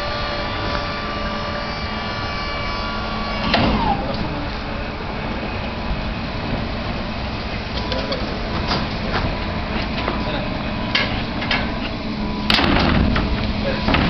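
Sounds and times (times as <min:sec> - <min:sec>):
hydraulic liftgate motor whine: 0:00.0 - 0:14.0
metal clank: 0:10.9 - 0:11.9, 0:12.5 - 0:14.0.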